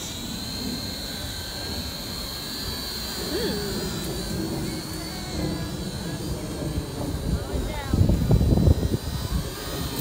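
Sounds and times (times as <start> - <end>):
drone propellers whining: 0.0 - 10.0
wind rumble on microphone: 3.9 - 10.0.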